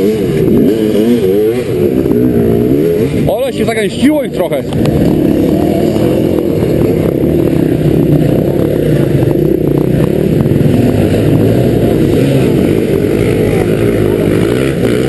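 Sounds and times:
motorcycle engines revving: 0.0s - 15.0s.

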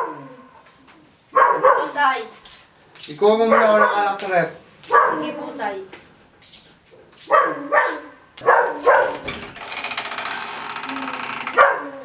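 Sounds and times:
dog barking: 0.0s - 0.5s, 1.3s - 2.0s, 3.5s - 4.2s, 4.9s - 5.5s, 7.2s - 9.2s, 11.6s - 12.0s
door scraping and rattling open: 8.4s - 11.8s.

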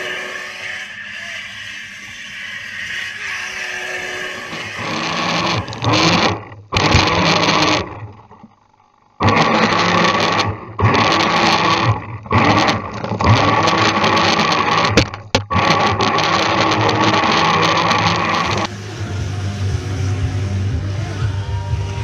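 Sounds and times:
boat motor whining: 0.0s - 22.0s.

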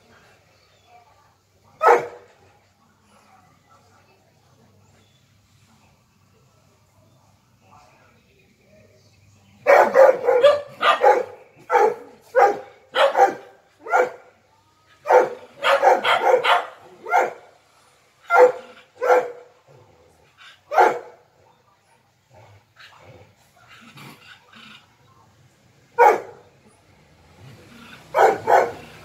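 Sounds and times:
dog barking: 1.7s - 2.3s, 9.6s - 14.3s, 15.0s - 17.5s, 18.3s - 19.5s, 20.7s - 21.2s, 26.0s - 26.5s, 28.0s - 29.0s.

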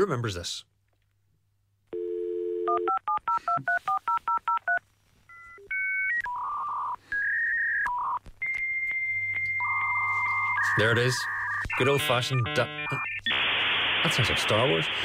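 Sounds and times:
telephone dial tone: 1.9s - 4.8s
touch-tone dialing: 2.0s - 13.5s.

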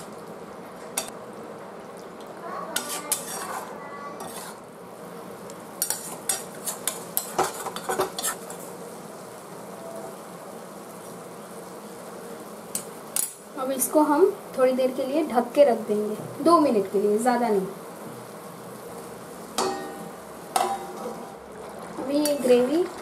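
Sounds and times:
gravy sizzling: 0.0s - 23.0s
metal spatula scraping a pan: 2.8s - 4.6s, 5.8s - 8.7s.

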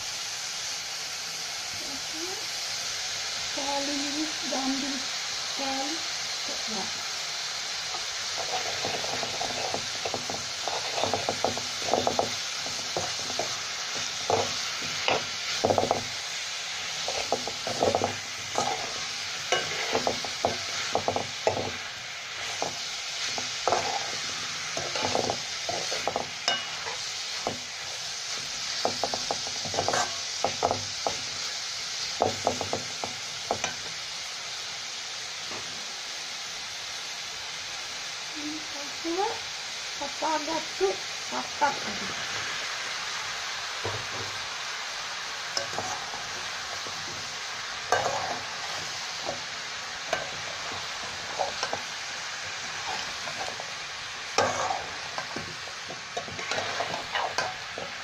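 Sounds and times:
food sizzling in a wok: 0.0s - 58.0s
metal spoon scraping pan: 8.3s - 16.1s, 16.9s - 31.3s, 45.6s - 58.0s.

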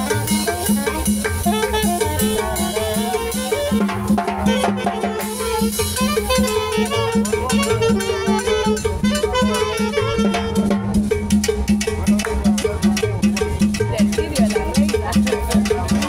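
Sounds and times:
saxophone melody: 0.0s - 11.1s
drums and cymbal: 0.0s - 16.0s.

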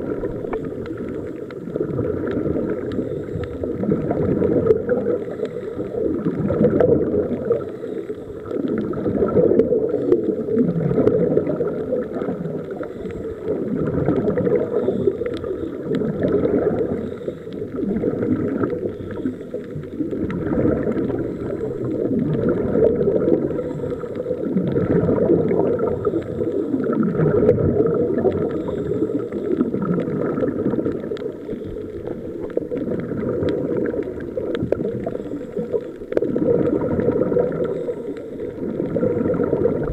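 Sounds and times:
underwater bubbles gurgling: 0.0s - 39.9s.

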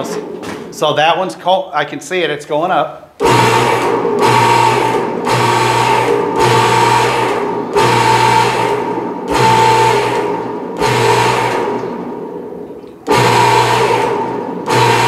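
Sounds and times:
hydraulic pump motor hum: 3.2s - 15.0s.

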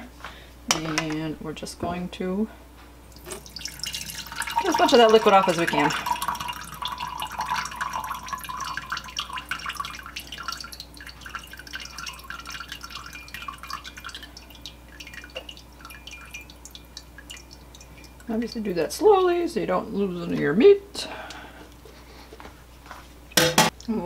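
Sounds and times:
grease dripping into cup: 3.1s - 18.8s.

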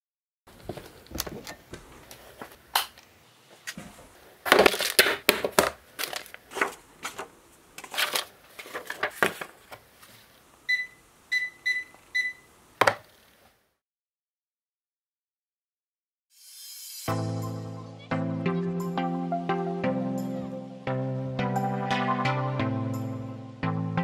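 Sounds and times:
paper rustling: 3.6s - 10.4s.

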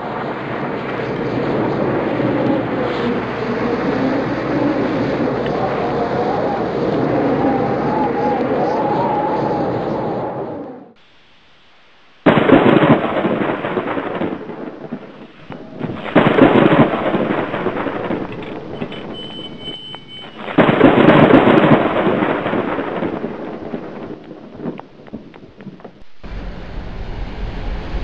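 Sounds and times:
thunder rumbling: 0.0s - 11.0s, 12.2s - 28.0s.

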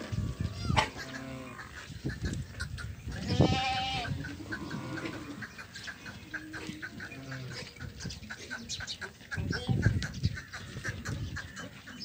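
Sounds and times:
goats bleating: 3.1s - 5.5s.

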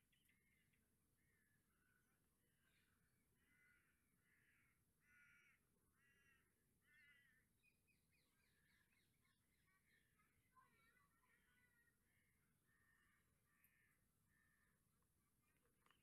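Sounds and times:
faint crow cawing: 1.2s - 7.5s, 10.6s - 15.0s.

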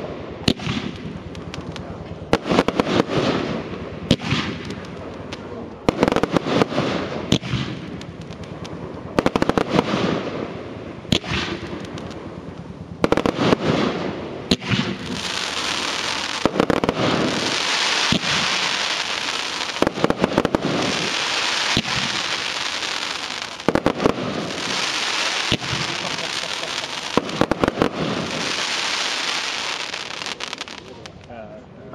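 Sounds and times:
firework bangs: 0.0s - 31.3s
hissing crackle of fireworks: 0.0s - 31.3s.

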